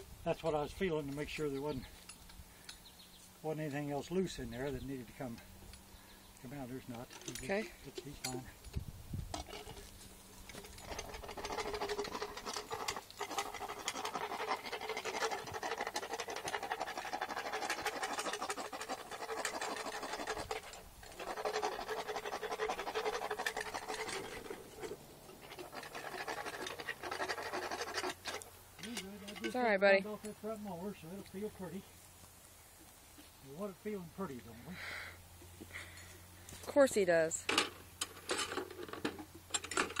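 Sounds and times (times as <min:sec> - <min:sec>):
dental float rasping on teeth: 0:10.8 - 0:28.4.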